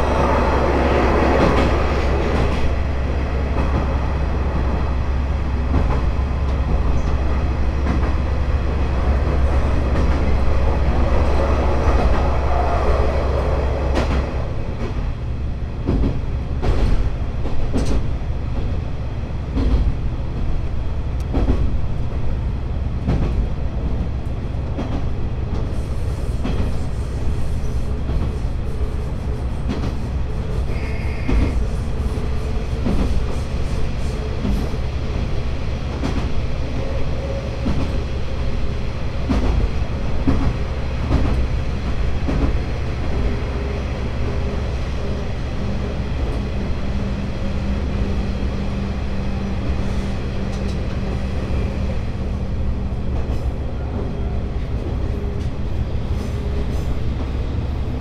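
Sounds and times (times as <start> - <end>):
railcar engine drone: 0.0 - 58.0.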